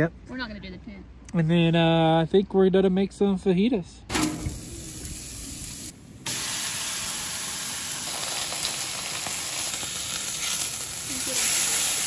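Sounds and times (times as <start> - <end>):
steaks sizzling on a griddle: 4.4 - 12.0.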